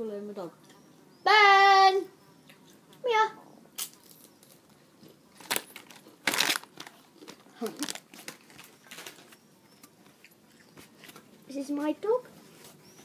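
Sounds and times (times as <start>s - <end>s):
crisp packet crinkling: 5.4s - 9.4s.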